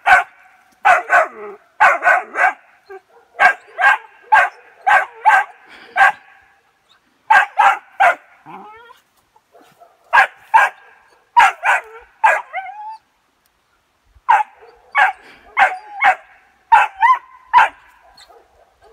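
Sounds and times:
puppy barking: 0.0 - 6.3, 7.3 - 8.8, 9.5 - 12.6, 14.3 - 18.9
puppy whining: 8.5 - 9.0.

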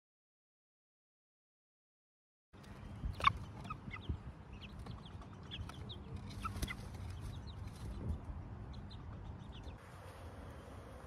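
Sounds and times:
hens clucking: 2.6 - 8.0.

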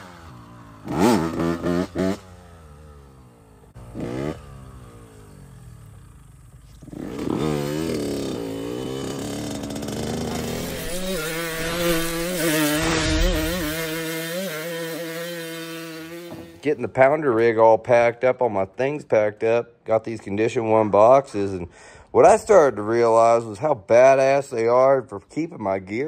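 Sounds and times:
dirt bike engine revving: 0.0 - 16.8.

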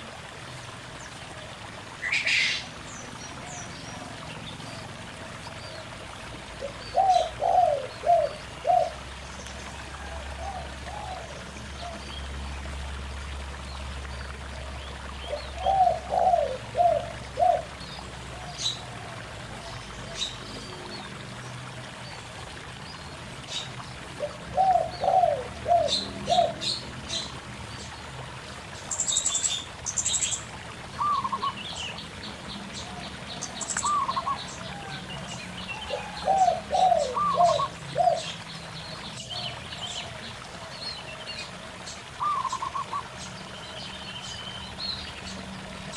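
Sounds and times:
trickling stream: 0.0 - 45.9
doves cooing: 3.4 - 12.0, 15.3 - 21.2, 24.1 - 27.4, 32.8 - 38.4, 39.2 - 43.2.

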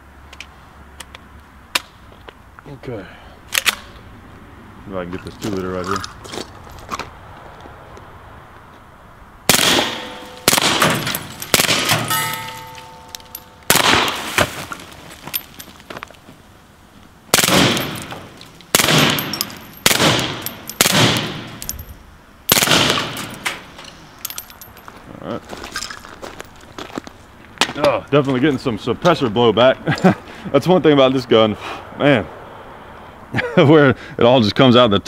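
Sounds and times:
metallic ring: 9.8 - 13.7, 19.1 - 20.8.

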